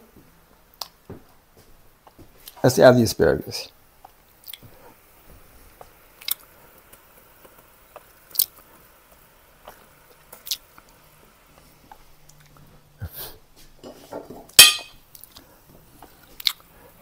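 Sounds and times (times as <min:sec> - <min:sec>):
wet squishing: 0:08.3 - 0:08.6, 0:09.6 - 0:10.8.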